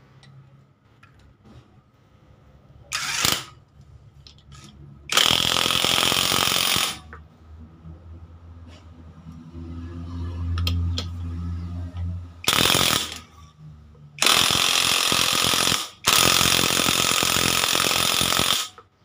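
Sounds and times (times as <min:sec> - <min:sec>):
impact wrench hammering: 0:14.2 - 0:18.8.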